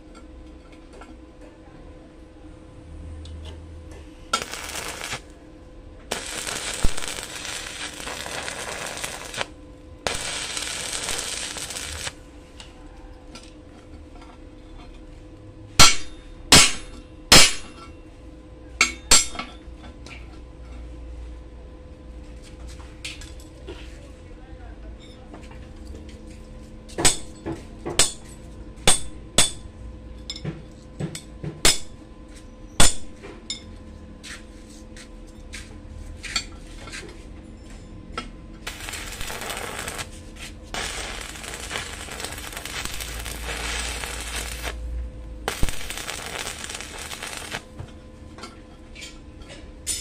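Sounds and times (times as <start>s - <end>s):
welding arc crackling: 4.3s - 5.3s, 6.1s - 12.2s, 38.6s - 47.7s.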